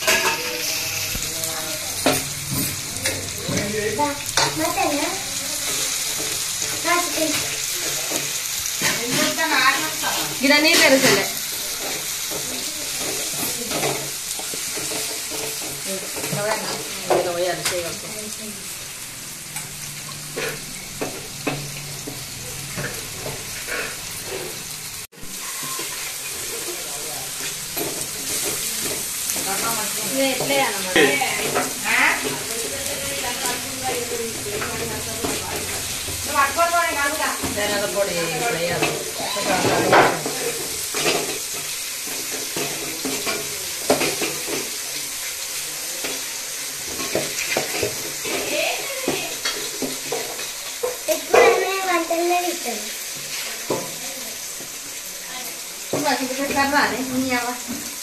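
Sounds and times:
spoon stirring and scraping pot: 0.0 - 1.3, 5.6 - 17.3, 20.3 - 32.9
food sizzling in hot oil: 0.0 - 58.0.

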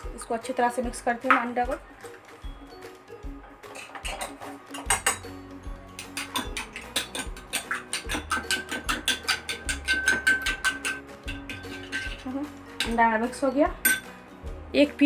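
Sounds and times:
spoon clinking in glass bowl: 6.0 - 13.0, 13.8 - 14.1.

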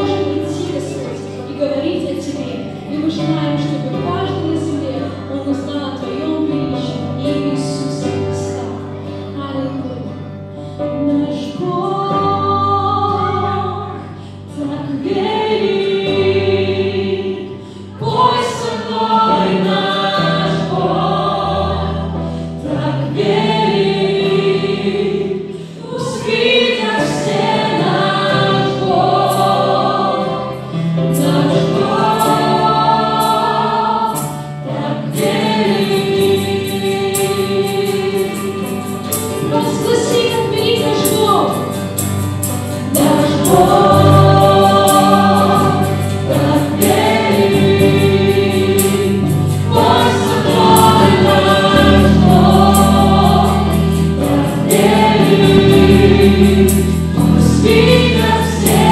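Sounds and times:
group singing together: 0.0 - 9.0, 11.3 - 58.9
acoustic guitar: 0.0 - 58.9
keyboard: 0.0 - 58.9
bass guitar: 38.5 - 58.9.

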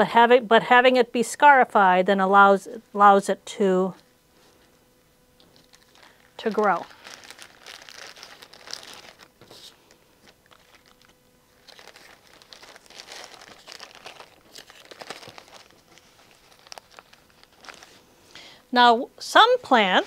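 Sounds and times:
plastic bag crinkling: 5.4 - 18.1
paper towel rustling: 5.5 - 18.1.

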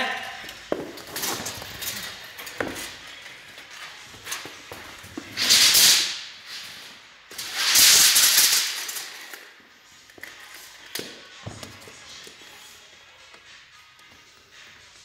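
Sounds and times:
loud rustling hissing bursts: 5.4 - 9.2.

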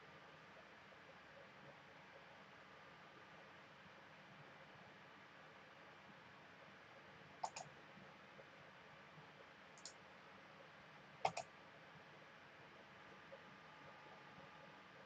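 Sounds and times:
computer mouse clicks: 7.4 - 7.7, 9.8 - 10.0, 11.2 - 11.5.

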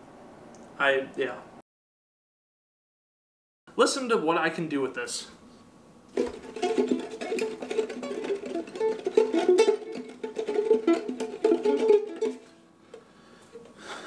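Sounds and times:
ukulele strummed fast: 6.2 - 12.6.

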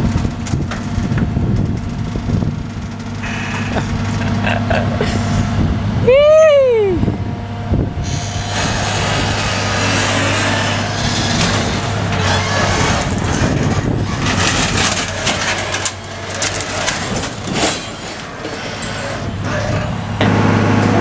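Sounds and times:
diesel engine running: 0.0 - 21.0
metal clanks and rattles: 8.9 - 20.4.

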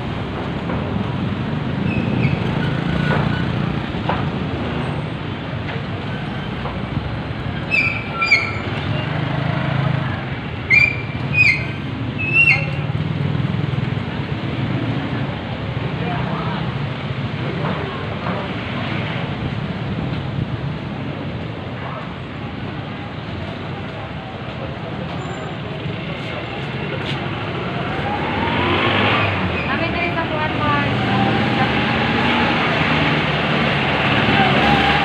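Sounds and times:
jeepney passing by: 0.0 - 35.0
vehicle engines running: 0.0 - 35.0.

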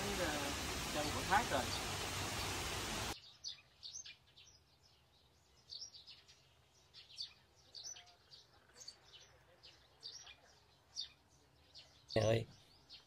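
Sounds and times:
loud steady hiss: 0.0 - 3.2
birds chirping: 0.0 - 13.0.

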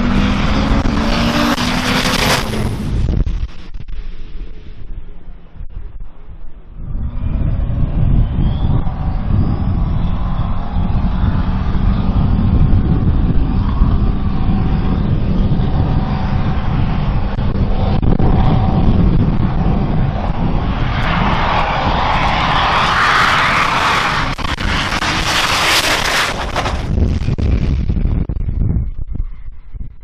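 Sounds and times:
diesel truck engine rumbling: 6.6 - 28.2.

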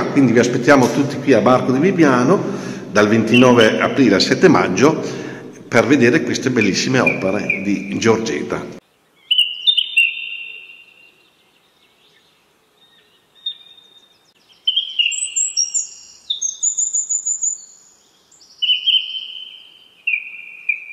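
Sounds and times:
bird song whistles and trills: 3.2 - 4.0, 6.5 - 8.2, 9.1 - 20.9.

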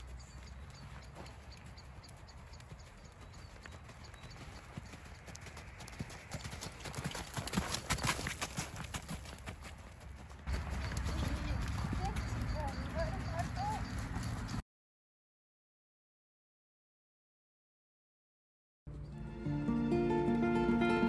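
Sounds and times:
horse hoofbeats on sand: 0.0 - 14.6.

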